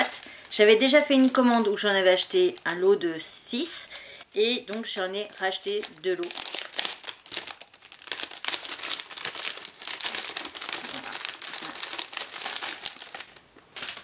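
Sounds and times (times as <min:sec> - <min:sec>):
packaging crinkling: 0:04.7 - 0:14.0.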